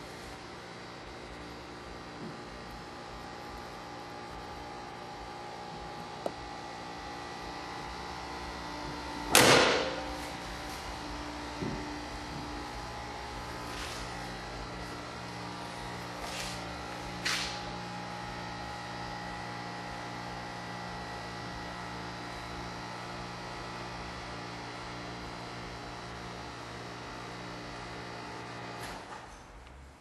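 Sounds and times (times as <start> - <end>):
machine humming: 0.0 - 21.8.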